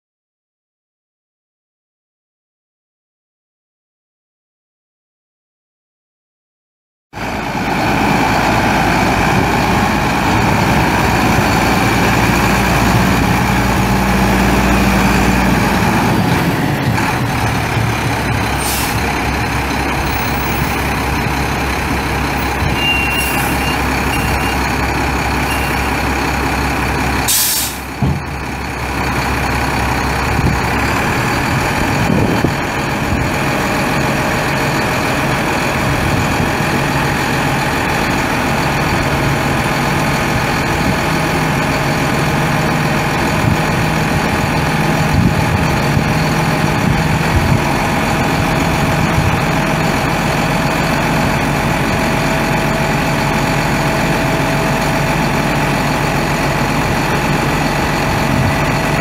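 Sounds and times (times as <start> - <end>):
truck diesel engine running: 7.2 - 59.0
air release hisses: 27.3 - 27.9.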